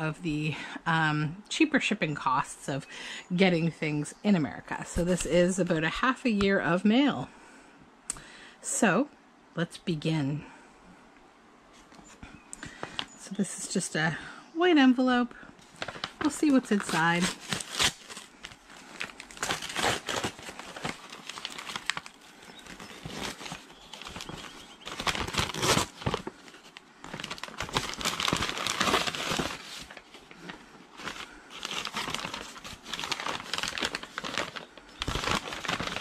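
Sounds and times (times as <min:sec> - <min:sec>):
packing crinkling and rustling: 0:15.6 - 0:36.0
envelope tearing: 0:15.8 - 0:36.0.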